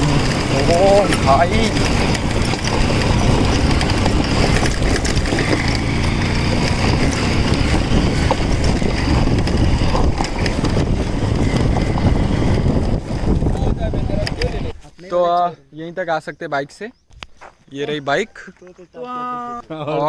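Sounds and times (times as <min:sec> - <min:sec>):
motorcycle engine running: 0:00.0 - 0:14.7
wind buffeting microphone: 0:00.0 - 0:14.8.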